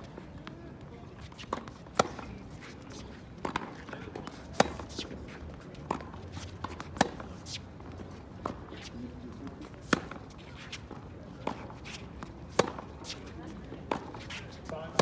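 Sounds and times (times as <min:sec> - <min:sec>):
tennis ball bouncing: 0:01.2 - 0:15.0
rackets striking tennis ball: 0:01.3 - 0:05.2, 0:05.8 - 0:08.7, 0:09.7 - 0:15.0.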